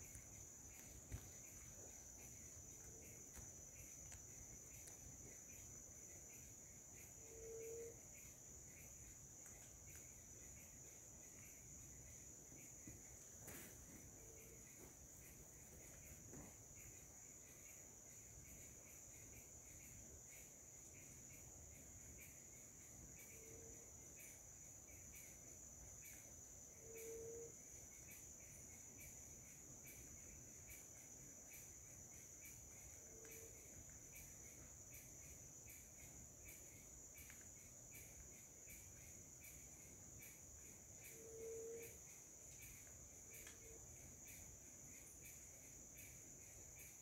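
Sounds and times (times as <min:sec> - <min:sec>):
high-pitched insect drone: 0:00.0 - 0:12.9, 0:26.0 - 0:47.0
insect chirping: 0:00.0 - 0:47.0.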